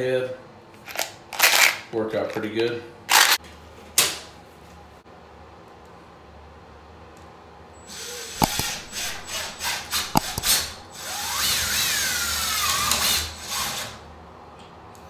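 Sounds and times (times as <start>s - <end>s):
impact driver whining: 8.3s - 11.4s.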